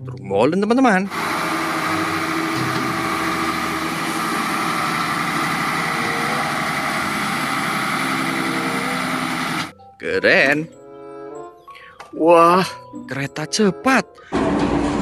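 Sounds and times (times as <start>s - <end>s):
truck diesel engine running: 1.0s - 9.7s.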